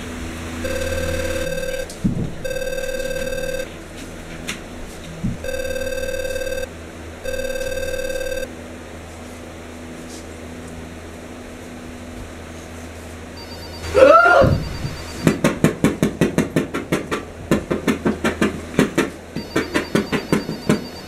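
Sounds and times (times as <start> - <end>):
telephone double ring: 0.6 - 3.7, 5.4 - 6.7, 7.3 - 8.5, 13.4 - 15.4, 19.4 - 21.0.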